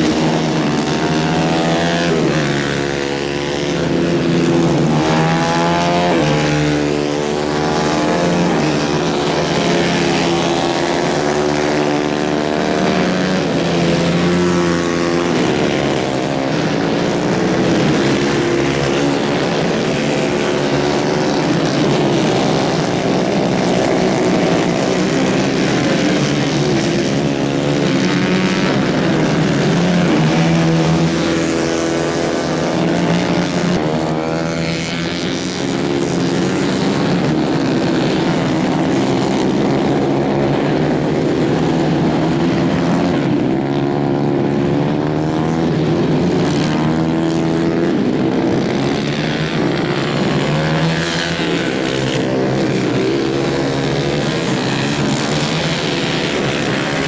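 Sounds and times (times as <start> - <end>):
racing kart engines: 0.0 - 57.0.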